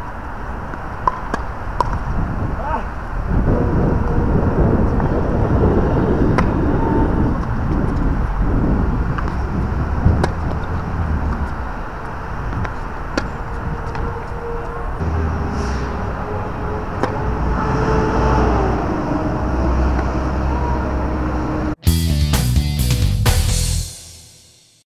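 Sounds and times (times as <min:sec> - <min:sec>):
tennis rackets striking ball: 0:00.7 - 0:02.2, 0:06.4 - 0:06.6, 0:09.1 - 0:14.3, 0:16.9 - 0:17.3.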